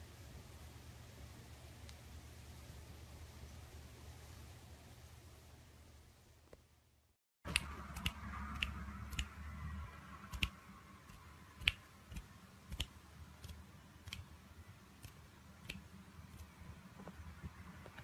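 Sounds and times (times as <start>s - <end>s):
faint low hum: 0.0s - 18.0s
sharp irregular clicks: 7.5s - 9.3s, 10.3s - 14.3s.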